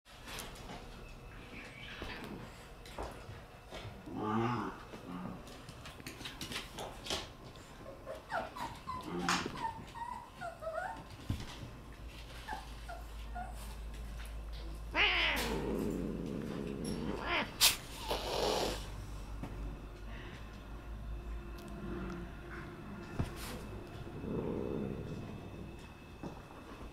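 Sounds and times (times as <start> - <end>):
cats mewing and crying: 14.8 - 16.0, 16.8 - 18.9.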